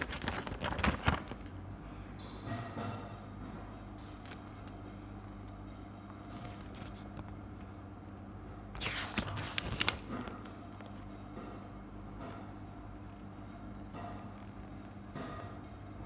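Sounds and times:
paper page rustling: 0.0 - 1.6, 6.3 - 7.4, 8.8 - 11.0
paper snapping: 8.8 - 10.1.

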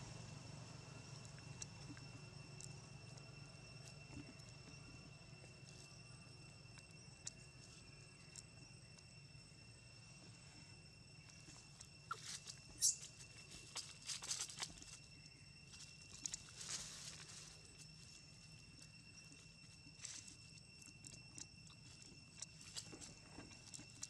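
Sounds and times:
dry leaves crunching under feet: 13.6 - 15.0.

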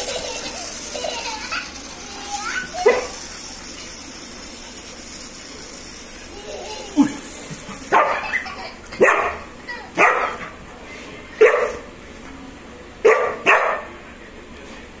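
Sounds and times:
puppy barking: 2.8 - 3.2, 7.9 - 8.4, 9.0 - 10.5, 11.4 - 11.8, 13.0 - 13.9.

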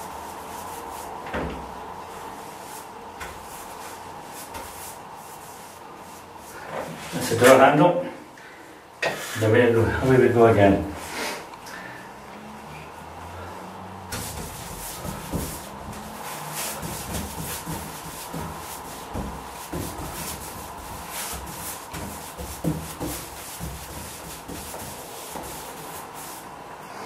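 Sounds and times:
paintbrush strokes on wood: 0.0 - 1.2, 2.0 - 7.4, 14.1 - 26.6.

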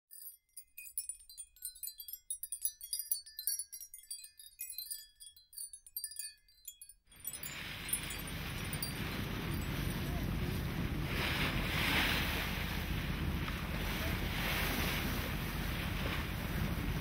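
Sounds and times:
tinkling chime tones: 0.0 - 10.2
wind: 0.1 - 17.0
water churning alongside ship: 7.3 - 17.0.

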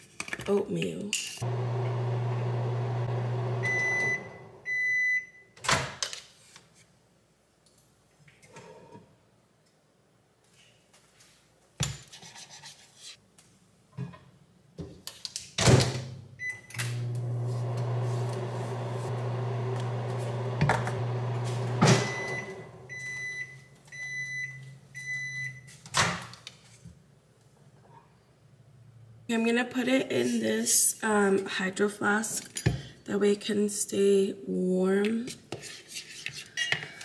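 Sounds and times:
microwave oven humming: 1.4 - 4.6, 16.8 - 23.2
microwave beeps: 3.2 - 5.5, 16.4 - 17.1, 21.1 - 25.7.

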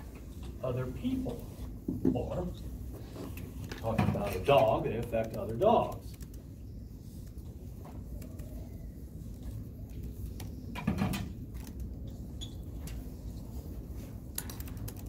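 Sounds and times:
markers scraping on whiteboard: 0.7 - 10.7.

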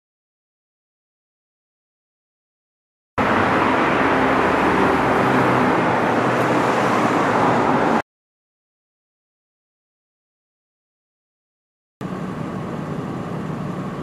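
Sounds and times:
van engine running: 3.2 - 8.0, 12.0 - 14.0.

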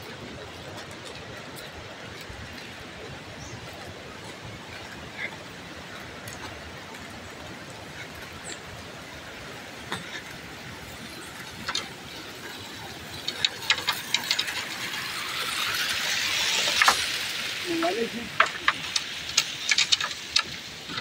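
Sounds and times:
small stream rushing: 0.0 - 21.0
outdoor hiss: 10.5 - 21.0.

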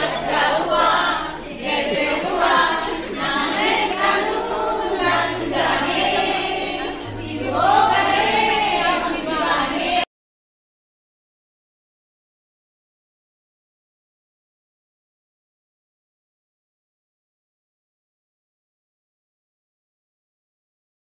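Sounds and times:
women singing in chorus: 0.0 - 10.1.

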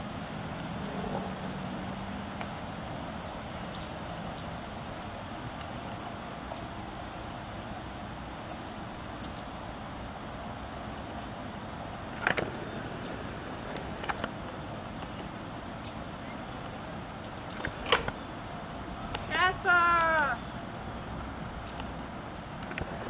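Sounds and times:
steady hiss: 1.6 - 23.0
bird chirping: 14.6 - 22.4.

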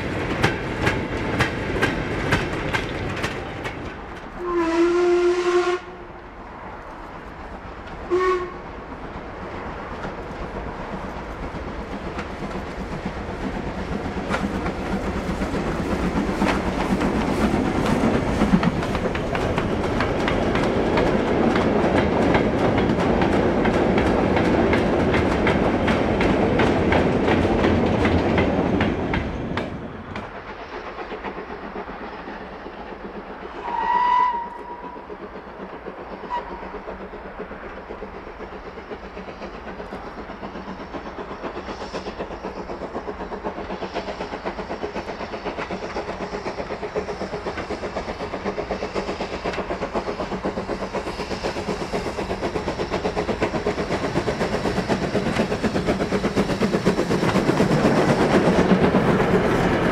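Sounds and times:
train wheels clicking over rail joints: 0.0 - 5.6, 6.2 - 59.9
steam locomotive exhaust: 0.0 - 59.9
steam whistle: 4.4 - 6.1, 8.1 - 8.7, 33.6 - 35.0, 36.2 - 36.7.

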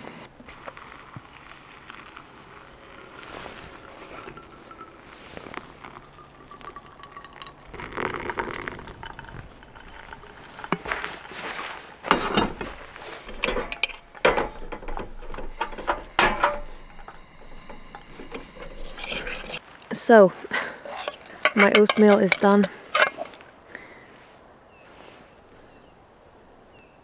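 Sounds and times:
water poured from a kettle: 0.5 - 19.6.

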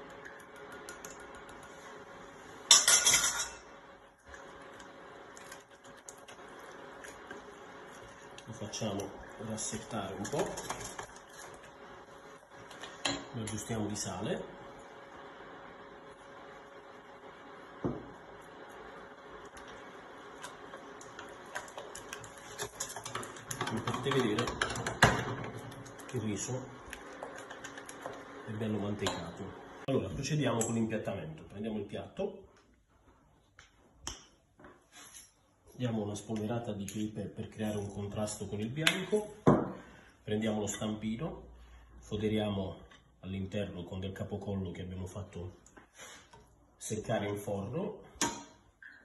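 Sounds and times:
kitchenware clatter: 2.7 - 3.6, 22.6 - 25.6
wooden spoon stirring in steel pot: 4.2 - 16.9, 17.6 - 29.8.

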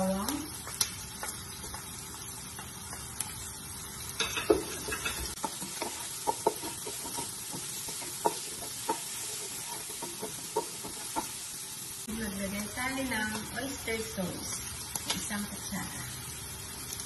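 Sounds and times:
onion sizzling in oil: 0.0 - 17.0
wooden spoon knocking pot: 4.2 - 9.1.

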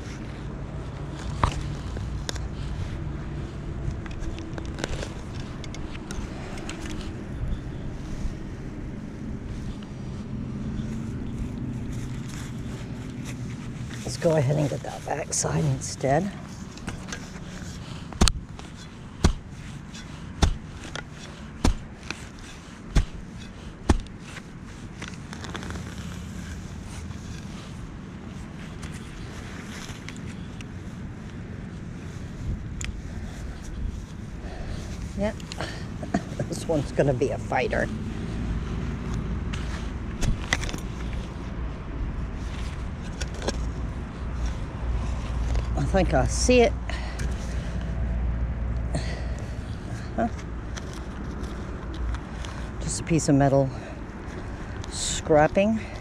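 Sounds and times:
hand digger scraping soil: 0.0 - 8.4, 9.1 - 30.8, 32.4 - 41.7, 42.3 - 48.0, 49.0 - 56.0
shovel thudding into turf: 18.2 - 22.2, 22.9 - 24.1.

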